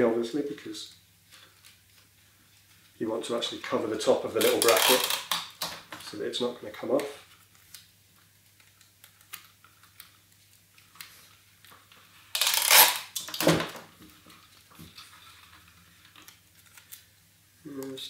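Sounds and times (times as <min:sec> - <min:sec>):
sticky tape ripping: 0:04.2 - 0:05.8, 0:12.3 - 0:13.6.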